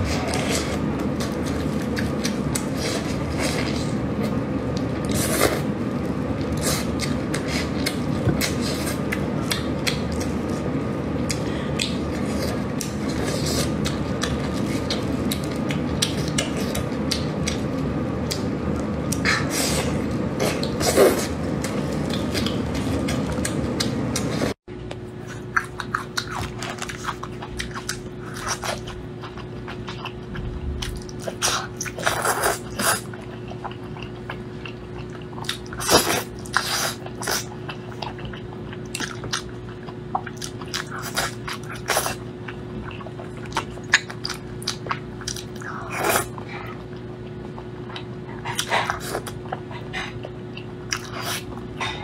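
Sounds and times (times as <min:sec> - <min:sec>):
faint steady hum: 0:00.0 - 0:52.0
chewing and wet mouth clicks: 0:07.0 - 0:10.4, 0:13.8 - 0:19.2.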